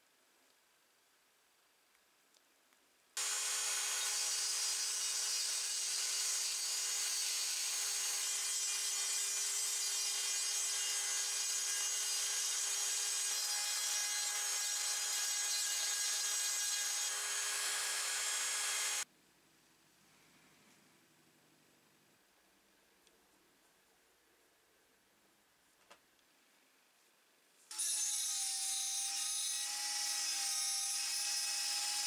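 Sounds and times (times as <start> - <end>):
rotary tool grinding rust: 3.2 - 19.0.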